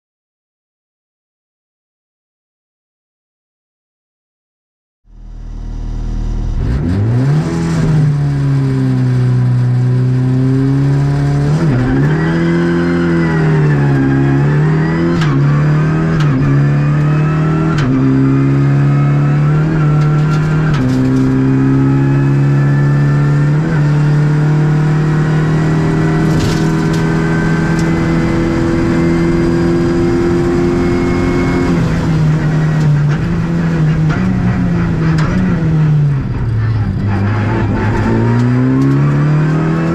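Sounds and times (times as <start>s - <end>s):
car engine accelerating hard: 5.1s - 39.9s
gearbox upshifts: 25.8s - 29.7s.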